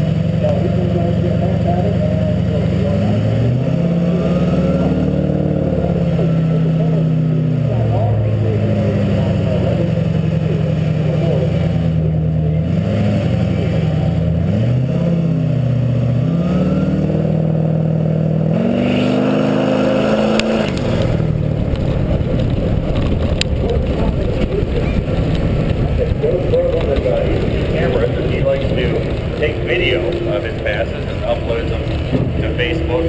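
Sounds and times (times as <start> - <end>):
truck engine revving: 0.0 - 33.0
wind and tyre noise on dirt: 11.0 - 33.0.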